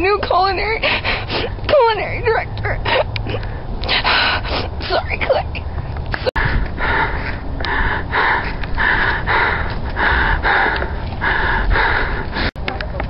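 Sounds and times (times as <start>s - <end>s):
low wind rumble on microphone: 0.0s - 13.0s
person breathing hard: 2.9s - 4.8s, 6.2s - 12.6s.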